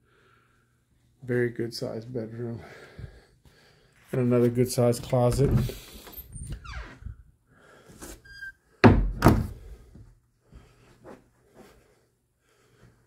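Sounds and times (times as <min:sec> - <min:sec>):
door creaking: 0:05.3 - 0:07.2, 0:08.1 - 0:09.6
heavy door thuds: 0:08.8 - 0:09.7.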